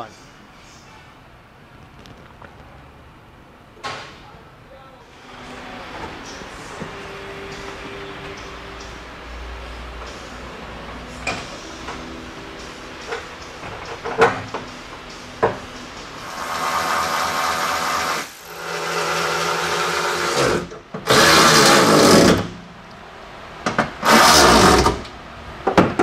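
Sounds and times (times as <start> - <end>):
power drill running: 16.2 - 21.9.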